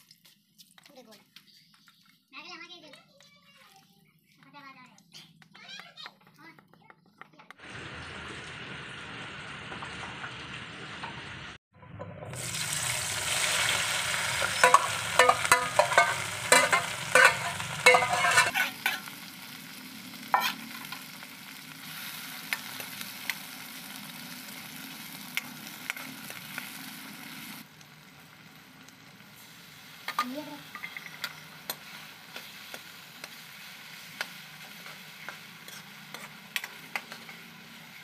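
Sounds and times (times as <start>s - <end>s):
vegetables frying in oil: 7.6s - 38.0s
metal ladle scraping pan: 11.8s - 19.1s, 20.3s - 21.0s, 34.8s - 37.4s.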